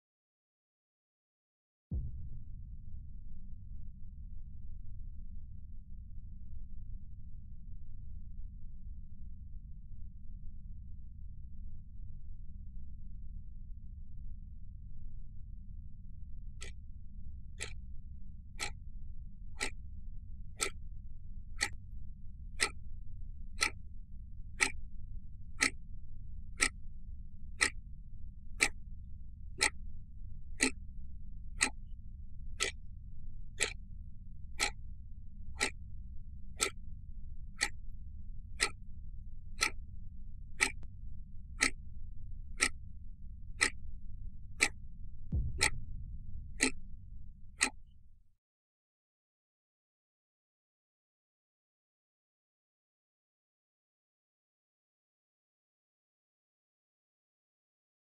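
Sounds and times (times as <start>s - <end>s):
low hum: 1.9s - 48.3s
low thump: 2.0s - 2.9s, 45.4s - 48.0s
wall clock ticking: 20.6s - 20.8s, 34.6s - 34.8s, 35.6s - 35.8s, 36.6s - 36.8s, 37.6s - 37.8s, 40.6s - 40.8s, 45.6s - 45.8s, 46.6s - 46.8s.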